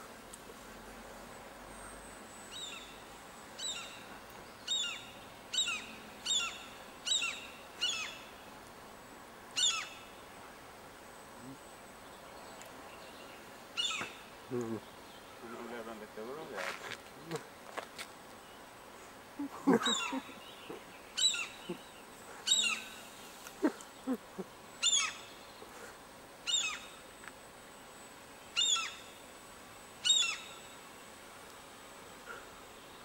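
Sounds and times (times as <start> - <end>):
gulls calling: 19.4 - 23.0.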